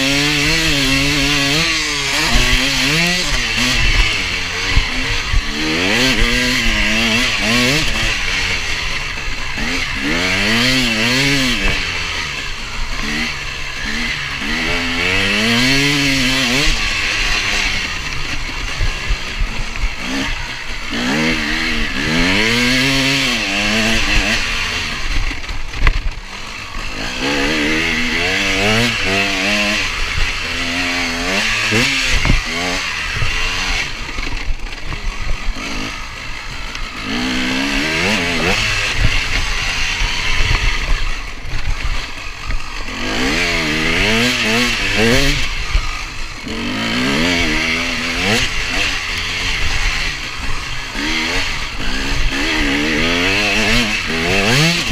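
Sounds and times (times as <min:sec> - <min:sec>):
dirt bike engine revving: 0:00.0 - 0:54.9.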